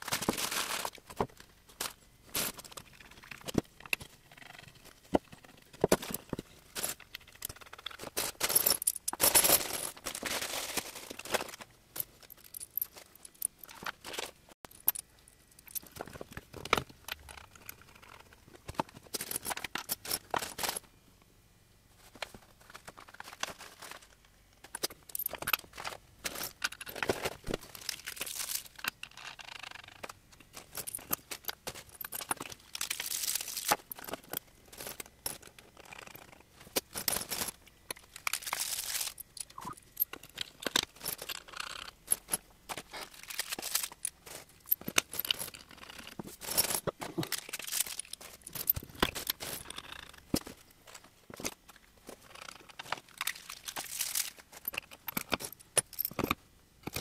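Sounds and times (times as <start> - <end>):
plastic bags and paper rustling: 0.0 - 4.2, 9.2 - 14.5, 22.0 - 24.2, 25.6 - 28.8, 36.5 - 39.3, 42.7 - 45.6, 46.2 - 49.7.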